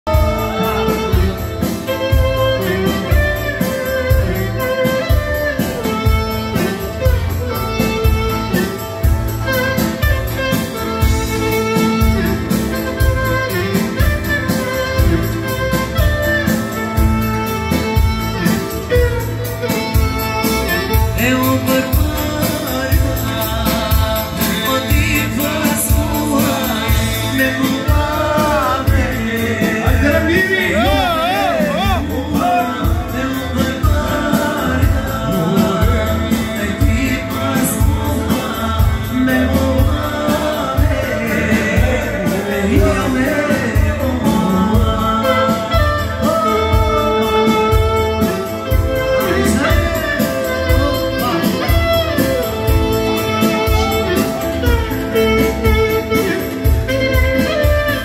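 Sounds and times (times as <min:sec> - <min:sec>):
live band music: 0:00.0 - 0:58.0
clarinet melody: 0:00.1 - 0:23.8, 0:44.7 - 0:58.0.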